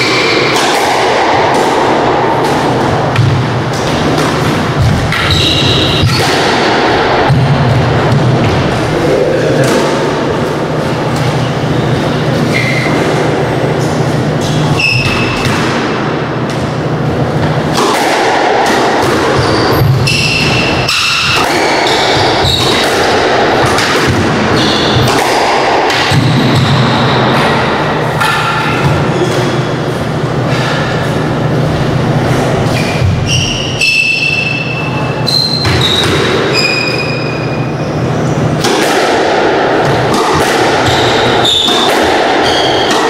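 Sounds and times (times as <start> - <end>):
squash ball smacking: 0.0 - 8.9, 12.4 - 34.7, 35.4 - 37.4, 38.4 - 43.0
steady low hum: 0.0 - 33.8
sneakers squeaking on wooden floor: 4.8 - 6.3, 11.1 - 15.5, 19.3 - 20.9, 21.6 - 22.9, 24.5 - 25.1, 32.4 - 38.4, 40.8 - 41.8.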